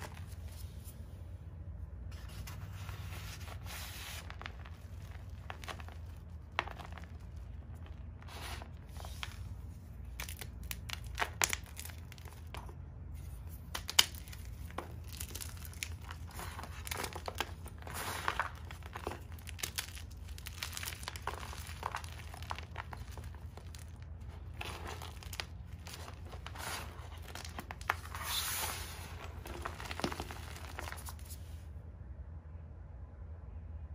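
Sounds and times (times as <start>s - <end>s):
chalk crunching in hands: 13.3s - 31.4s.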